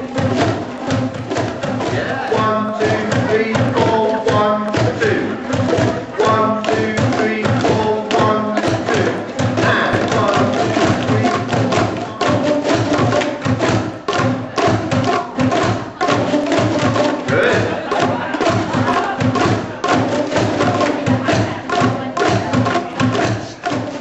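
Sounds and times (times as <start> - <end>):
boomwhackers hollow pitched tones: 0.0 - 24.0
quick tapping of plastic tubes: 0.1 - 24.0.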